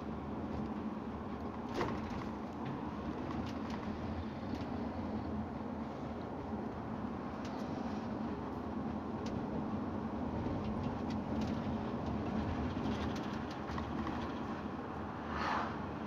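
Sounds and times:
vehicle engine and road noise: 0:00.0 - 0:16.0
passing car whoosh: 0:15.2 - 0:16.0.

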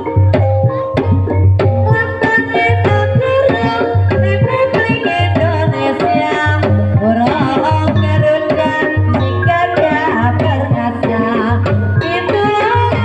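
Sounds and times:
hand drum beats: 0:00.0 - 0:13.0
ringing metallophone melody: 0:00.0 - 0:13.0.

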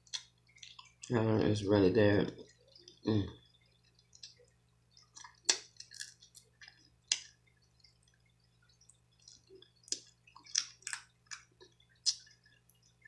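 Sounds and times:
crab shell cracking: 0:05.1 - 0:07.4, 0:09.2 - 0:12.2.

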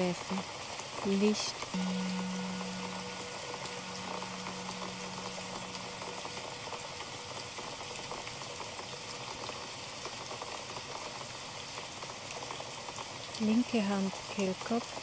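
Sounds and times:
rain falling: 0:00.0 - 0:15.0
singing bowl ringing: 0:01.8 - 0:07.6.

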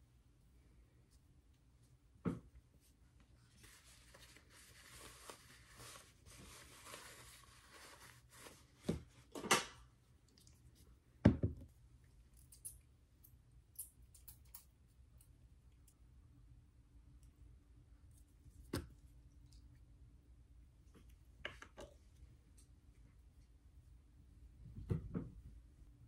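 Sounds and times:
soft rustling: 0:00.2 - 0:09.4.

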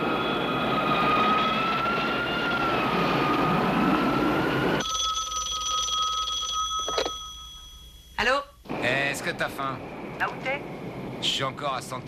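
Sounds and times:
jet engine whine: 0:00.0 - 0:04.8, 0:08.7 - 0:12.0
telephone ringing: 0:04.8 - 0:08.3.

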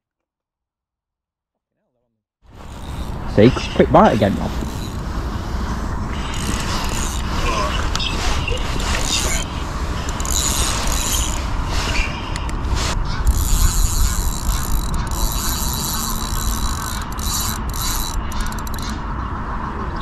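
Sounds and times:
fishing reel winding: 0:02.6 - 0:03.3, 0:04.5 - 0:05.2, 0:06.1 - 0:11.5, 0:13.3 - 0:19.0.

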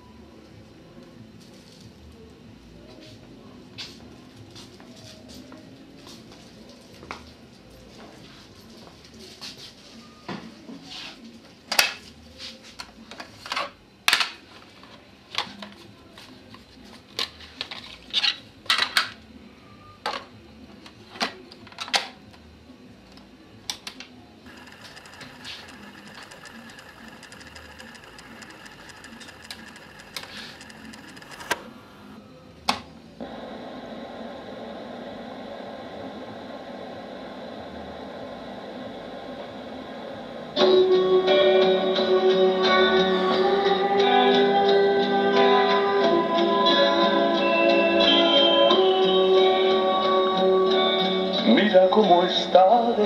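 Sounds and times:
tape running hum and hiss: 0:22.3 - 0:40.5.

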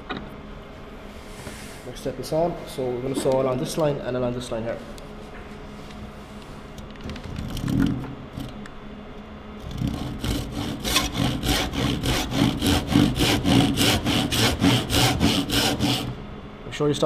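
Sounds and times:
saw cutting timber: 0:09.6 - 0:16.2.

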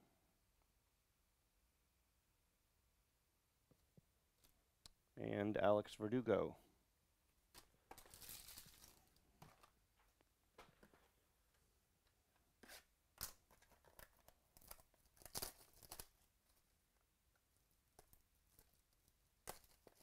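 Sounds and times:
wrapper and cards crinkling: 0:07.5 - 0:09.8, 0:13.2 - 0:16.6.

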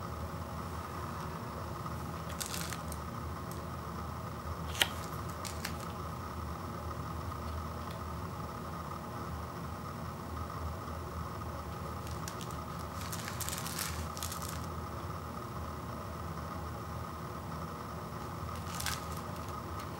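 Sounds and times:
plastic cup rustling: 0:02.2 - 0:03.0, 0:04.7 - 0:06.0, 0:12.0 - 0:14.7, 0:18.5 - 0:19.6.

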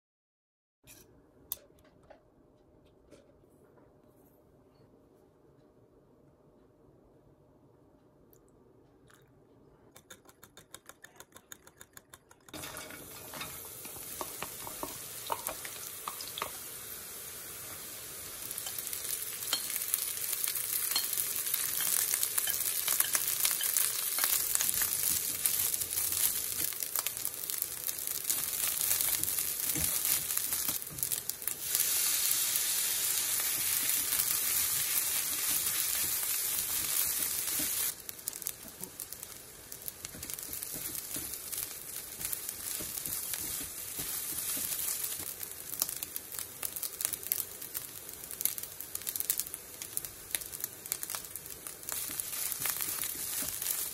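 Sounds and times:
food sizzling in a pan: 0:12.5 - 0:53.9.

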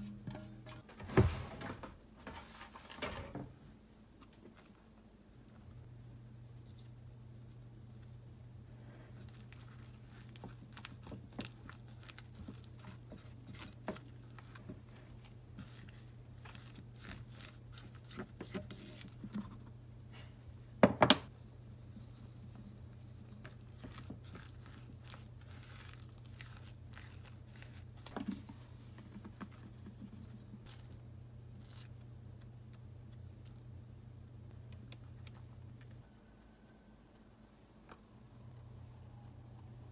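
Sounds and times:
dough squishing: 0:06.6 - 0:19.8, 0:21.3 - 0:33.8.

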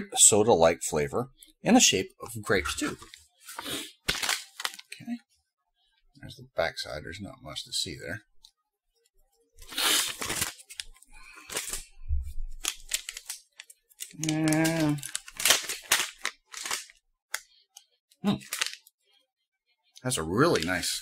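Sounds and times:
plastic pouch crinkling and tearing: 0:02.8 - 0:05.1, 0:09.6 - 0:11.9, 0:12.5 - 0:17.5, 0:18.3 - 0:18.9.

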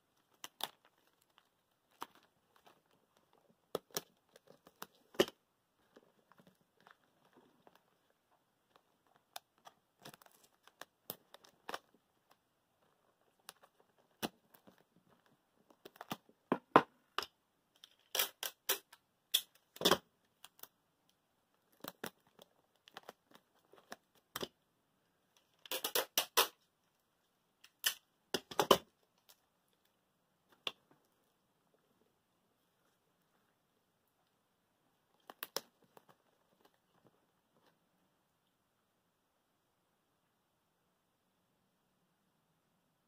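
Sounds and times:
tape and plastic crinkling: 0:08.7 - 0:12.4, 0:17.2 - 0:20.8, 0:21.6 - 0:24.6, 0:25.3 - 0:26.7.

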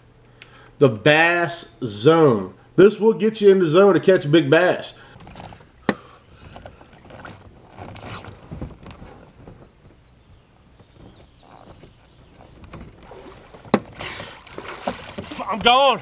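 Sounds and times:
water sloshing against boat hull: 0:05.0 - 0:16.0.

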